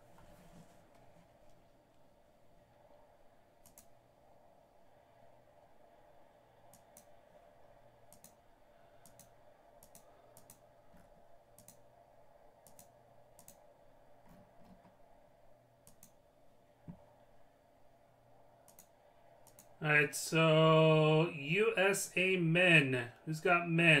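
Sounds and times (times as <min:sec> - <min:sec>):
low steady hum: 0:00.0 - 0:24.0
faint clicks in pairs: 0:03.6 - 0:03.9, 0:08.1 - 0:08.4, 0:09.0 - 0:11.8, 0:12.6 - 0:13.6, 0:15.8 - 0:16.2, 0:18.6 - 0:19.7.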